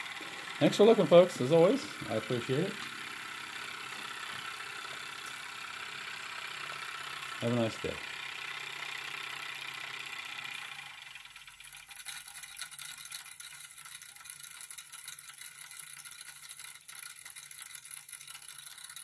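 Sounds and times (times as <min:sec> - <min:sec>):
toy steam engine running: 0:00.0 - 0:19.0.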